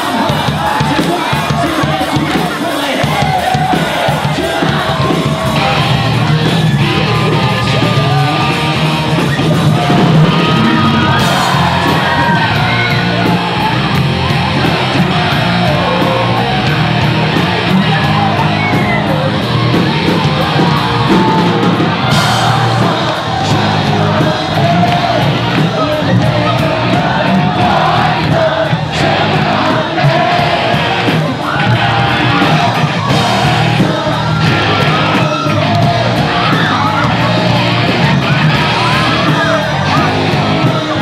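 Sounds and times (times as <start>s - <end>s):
drums: 0.0s - 41.0s
electric guitar: 0.0s - 41.0s
person singing into microphone: 17.4s - 41.0s.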